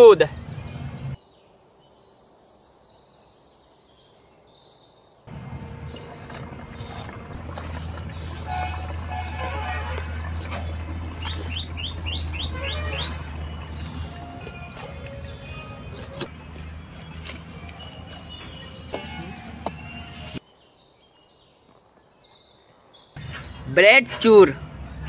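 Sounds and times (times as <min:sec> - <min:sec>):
small birds chirping: 0:00.0 - 0:23.8
steady low hum: 0:05.3 - 0:18.4.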